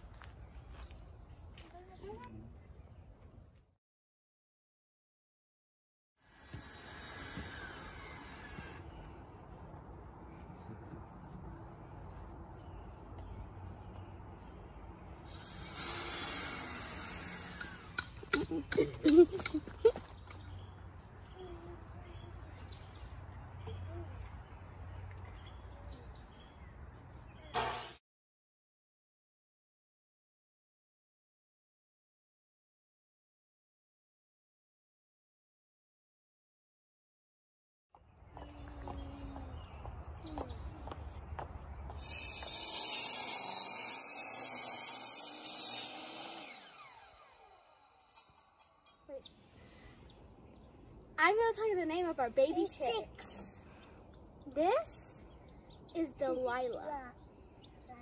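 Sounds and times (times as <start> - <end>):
miter saw cutting wood: 6.2 - 8.9, 15.3 - 19.6, 42.0 - 49.0
saw blade winding down whine: 6.3 - 8.9, 15.3 - 18.2, 42.0 - 49.0
brief loud noise: 27.5 - 28.0
bird chirps: 38.2 - 42.3, 48.1 - 58.0.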